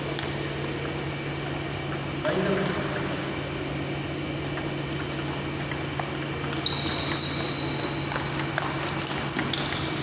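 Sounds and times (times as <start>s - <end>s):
steady low hum: 0.0s - 10.0s
high steady squeal: 6.6s - 8.6s.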